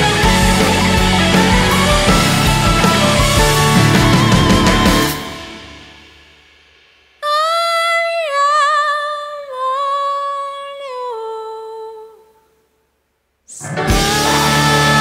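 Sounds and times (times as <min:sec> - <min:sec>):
band playing: 0:00.0 - 0:06.2, 0:13.6 - 0:15.0
woman singing: 0:07.2 - 0:12.5, 0:13.5 - 0:15.0.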